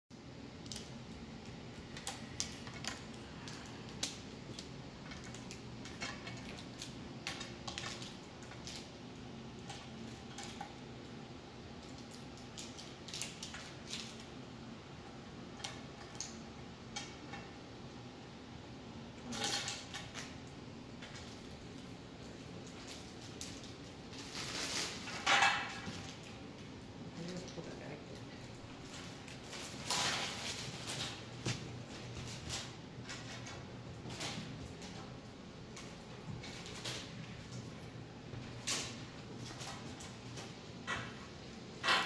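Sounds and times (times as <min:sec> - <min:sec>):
low room hum: 0:00.1 - 0:42.0
plastic bags rustling: 0:21.0 - 0:26.6, 0:27.2 - 0:42.0.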